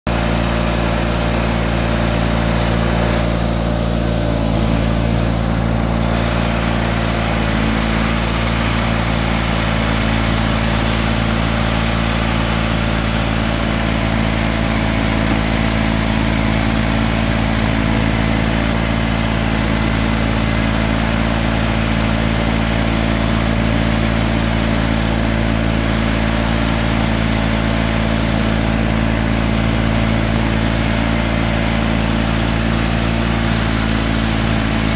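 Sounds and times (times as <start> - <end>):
garden tractor engine running: 0.0 - 34.9
snowblower throwing snow: 0.1 - 34.9.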